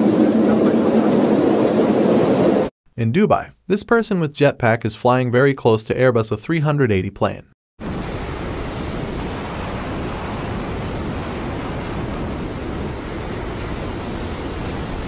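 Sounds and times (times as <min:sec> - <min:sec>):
air rushing in high-speed flight: 0:00.0 - 0:02.7, 0:07.8 - 0:15.0.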